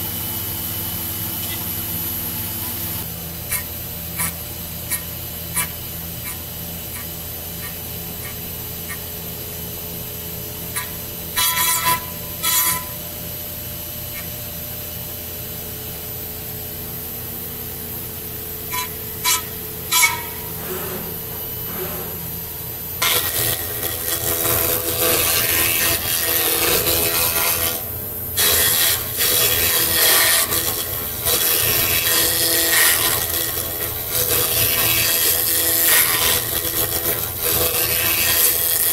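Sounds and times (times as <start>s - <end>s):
steady machine hum: 0.0s - 38.9s
mill cutting wood: 18.6s - 38.9s.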